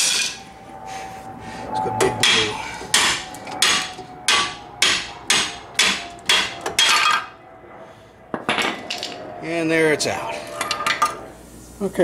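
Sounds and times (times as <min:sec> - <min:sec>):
hammer striking metal: 0:02.2 - 0:07.3.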